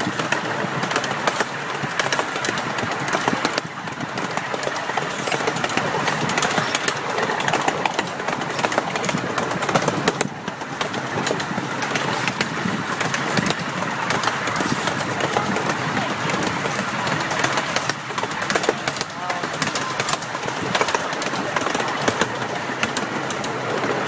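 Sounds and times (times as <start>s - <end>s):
miniature train rumbling and rattling: 0.0s - 24.0s.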